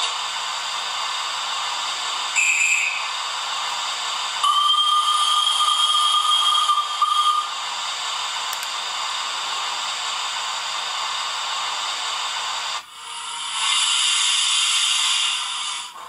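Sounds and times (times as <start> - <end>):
steam hiss: 0.0 - 16.0
two-tone steam whistle: 2.3 - 3.2, 4.4 - 7.6.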